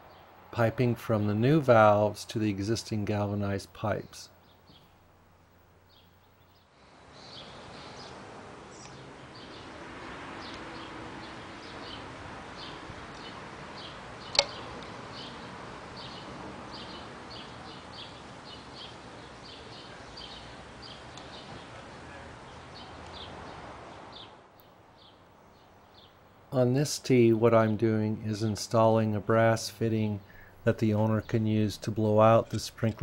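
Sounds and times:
steady background hiss: 0.0 - 33.0
sharp click: 14.3 - 14.9.

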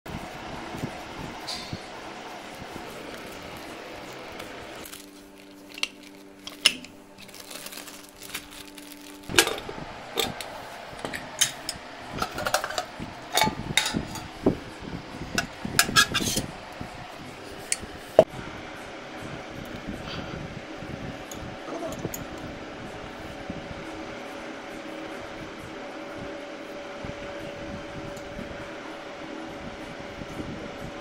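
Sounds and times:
steady hum: 0.1 - 31.0
metal cookware clanking: 9.3 - 14.4, 15.4 - 16.5.

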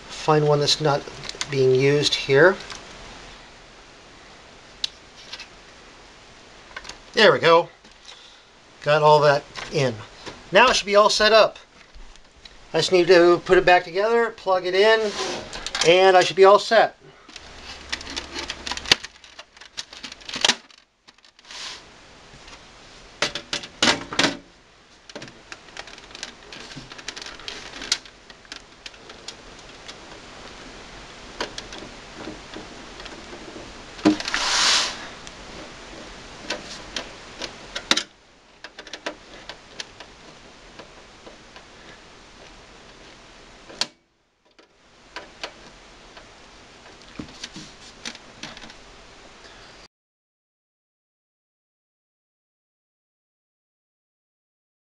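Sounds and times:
loud rasp: 15.0 - 15.6
computer case parts clicking: 17.8 - 21.4, 36.4 - 41.7, 42.4 - 48.8.

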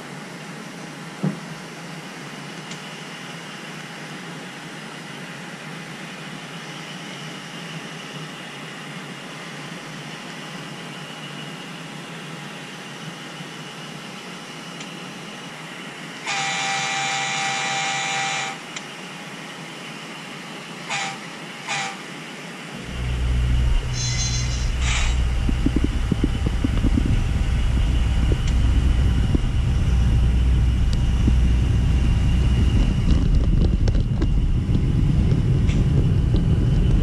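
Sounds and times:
model train wheels on rail: 9.8 - 37.0
model locomotive horn blast: 16.2 - 18.7, 20.9 - 22.1, 22.8 - 25.4.

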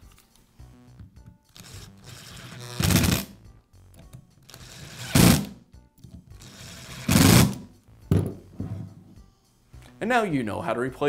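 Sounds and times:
electric screwdriver whirring: 1.5 - 3.3, 4.5 - 5.5, 6.4 - 7.6.

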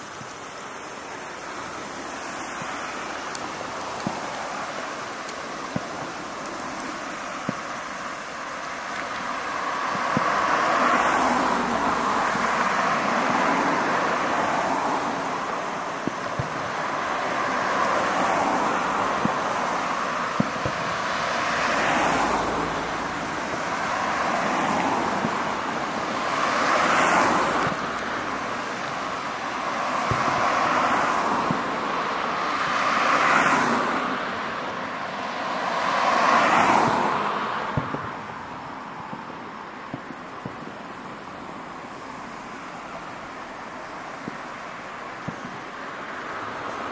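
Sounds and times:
firework cracks: 0.0 - 38.4, 39.0 - 46.0
firework shells booming: 15.2 - 26.7, 27.3 - 30.6.

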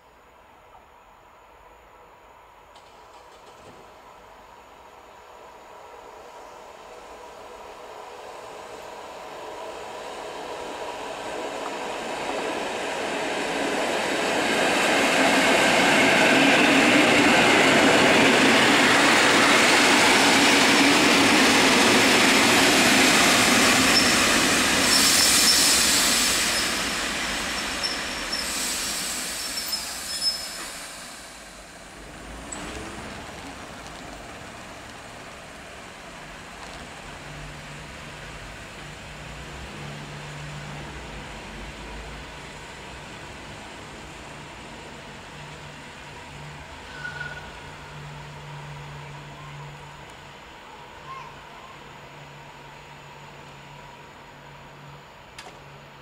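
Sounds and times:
electric train passing: 1.0 - 56.0
brake and wheel squeals: 23.9 - 26.8, 27.6 - 28.6, 29.3 - 30.8, 46.8 - 48.2.

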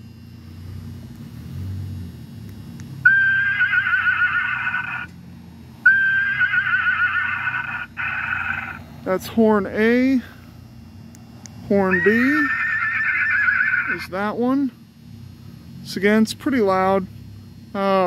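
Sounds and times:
horse-whinny car horn: 3.1 - 5.1, 5.9 - 8.8, 11.9 - 14.0.

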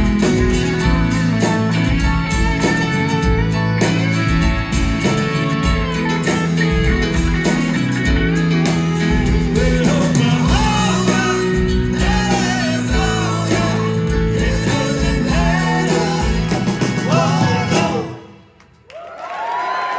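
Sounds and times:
live rock band playing: 0.0 - 18.5
people singing: 9.2 - 18.6.

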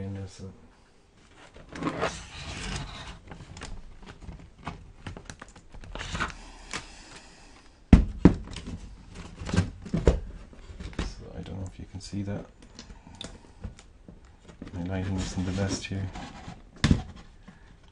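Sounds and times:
plastic casing rubbing and scraping: 1.3 - 6.4, 13.6 - 17.9.

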